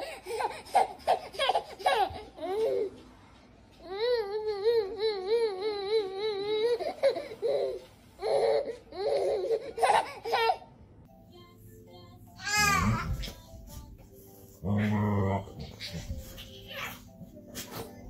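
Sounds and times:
baby laughing and babbling: 0:00.0 - 0:03.0, 0:03.9 - 0:10.7, 0:15.4 - 0:18.0.

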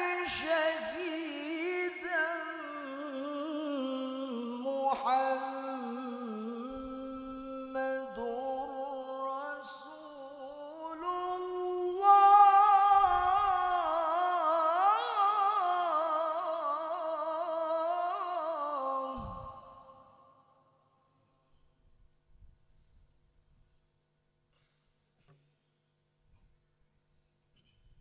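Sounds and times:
man chanting melismatic recitation: 0:00.0 - 0:20.0.

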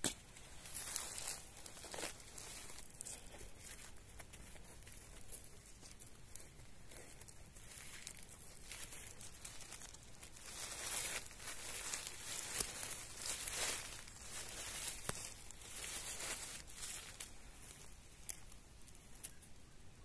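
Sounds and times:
dry leaf litter rustling: 0:00.3 - 0:19.6.

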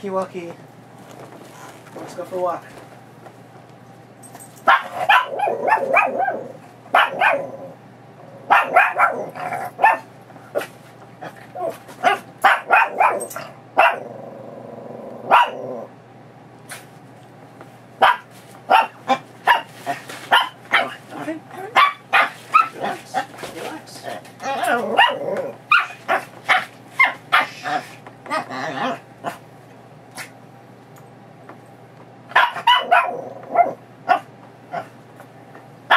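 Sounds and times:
small dog barking and yipping: 0:04.6 - 0:07.5, 0:08.5 - 0:10.7, 0:11.6 - 0:14.0, 0:15.3 - 0:15.6, 0:18.0 - 0:23.3, 0:24.4 - 0:29.4, 0:32.3 - 0:34.9.

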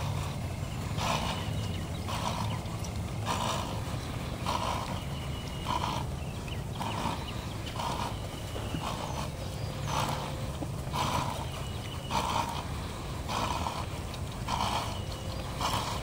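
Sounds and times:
horse blowing breath: 0:00.0 - 0:16.0.

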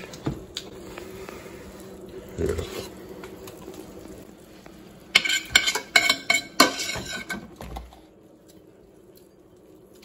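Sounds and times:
cutlery clinking against dishes: 0:05.2 - 0:07.5.

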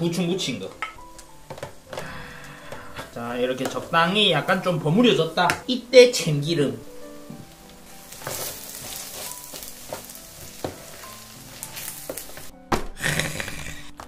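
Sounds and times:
rice sizzling in oil: 0:00.0 - 0:13.7
spoon scraping pan: 0:07.3 - 0:12.5.

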